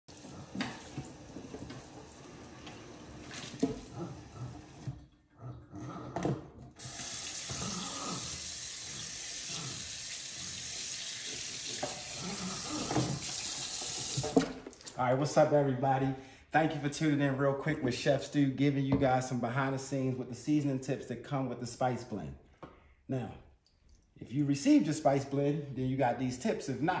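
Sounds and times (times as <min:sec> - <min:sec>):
kitchen tap running: 0:00.1 - 0:05.0, 0:06.8 - 0:14.9.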